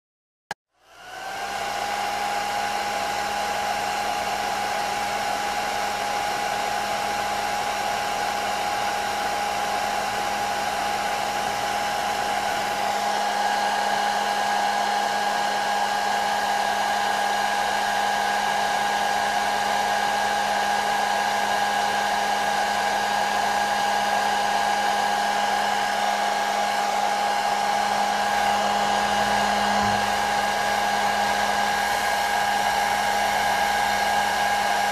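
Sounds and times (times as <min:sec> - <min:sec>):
hair dryer running: 0:00.7 - 0:34.9.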